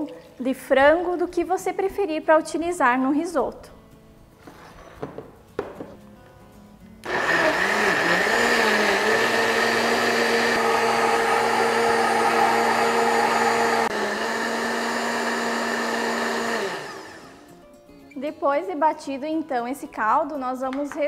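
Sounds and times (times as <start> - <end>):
blender motor whine: 7.0 - 17.4.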